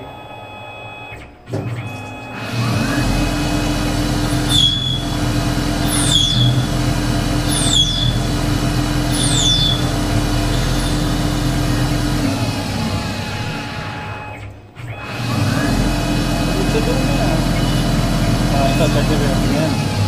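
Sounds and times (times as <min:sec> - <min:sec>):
lathe spindle whine: 0:02.3 - 0:20.0
tool squealing cutting steel: 0:04.3 - 0:11.5, 0:17.1 - 0:20.0.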